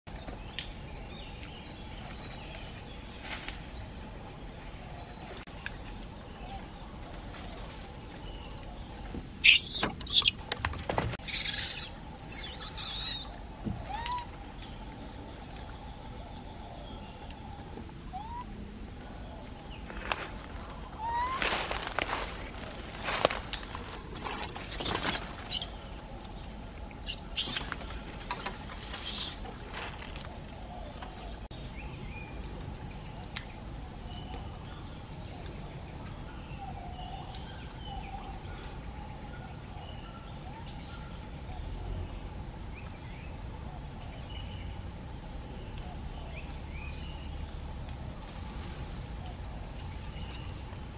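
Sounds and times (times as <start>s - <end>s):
infant monkeys squealing: 9.4s - 10.3s, 11.2s - 14.3s, 24.6s - 25.7s, 27.0s - 27.7s
dry leaves rustling and crackling: 19.8s - 25.9s, 27.6s - 30.6s, 47.4s - 50.9s.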